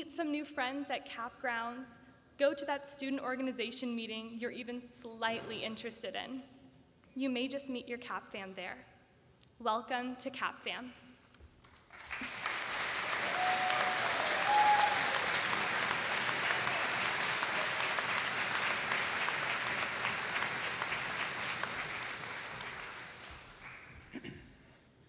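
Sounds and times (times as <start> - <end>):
large audience applauding: 11.7 - 24.2.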